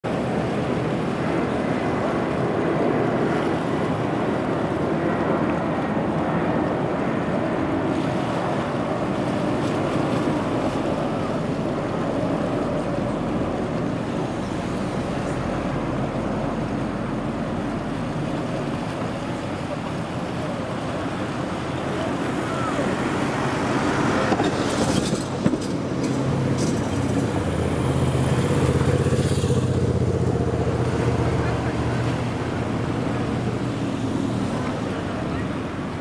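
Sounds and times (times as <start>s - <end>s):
sea water washing: 0.0s - 36.0s
wind: 0.0s - 36.0s.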